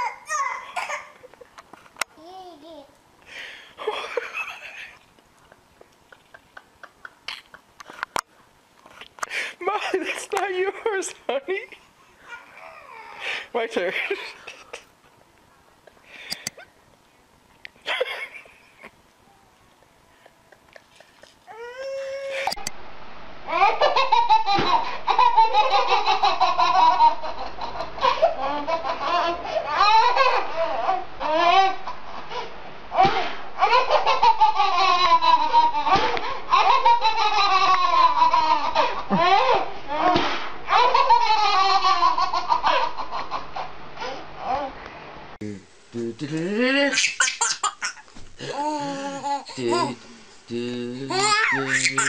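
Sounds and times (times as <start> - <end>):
babies laughing: 0.0 - 1.5, 23.5 - 32.0, 33.0 - 43.4, 46.9 - 50.1, 51.1 - 52.0
baby crying: 12.2 - 13.3, 21.5 - 22.6, 28.0 - 31.9, 51.1 - 52.0.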